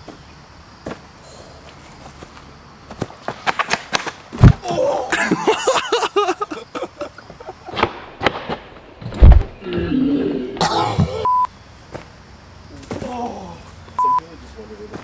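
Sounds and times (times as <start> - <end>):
heavy thump: 4.4 - 4.7.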